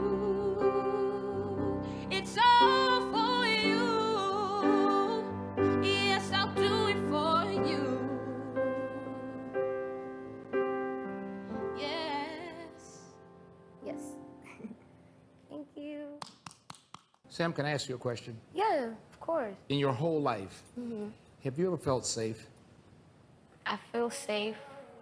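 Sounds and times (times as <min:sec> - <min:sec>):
piano chords: 0:00.0 - 0:15.1.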